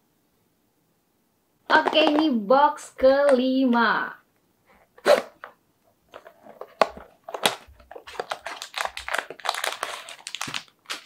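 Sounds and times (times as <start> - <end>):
cardboard rustling: 6.1 - 11.0.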